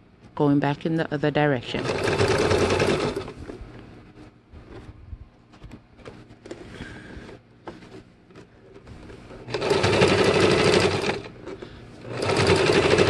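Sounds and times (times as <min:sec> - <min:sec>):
electric sewing machine stitching: 0:01.7 - 0:03.6, 0:09.4 - 0:13.0.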